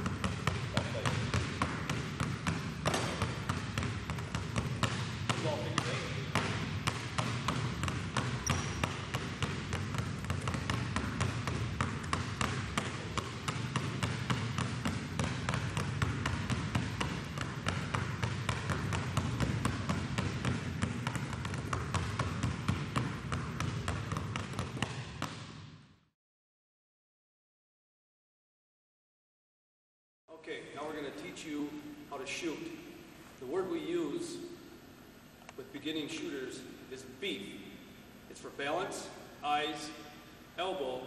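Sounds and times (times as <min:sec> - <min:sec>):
basketballs bouncing on hardwood floor: 0:00.0 - 0:25.8.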